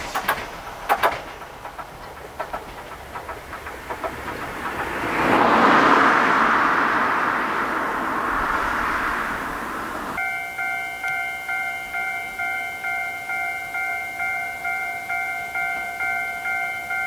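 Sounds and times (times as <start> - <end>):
train wheels clicking over rail joints: 0.0 - 8.5
rushing noise: 0.0 - 10.9.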